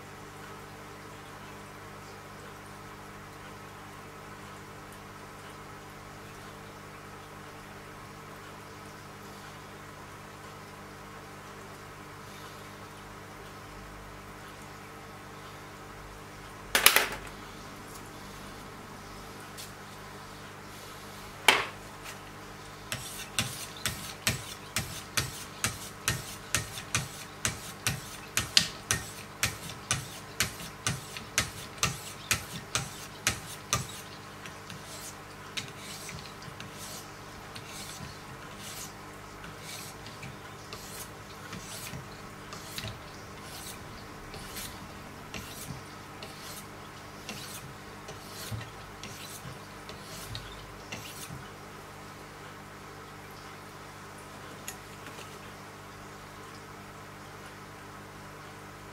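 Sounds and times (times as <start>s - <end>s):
sharpening stones rasping on blade: 22.9s - 34.1s, 34.7s - 46.7s, 47.3s - 51.4s.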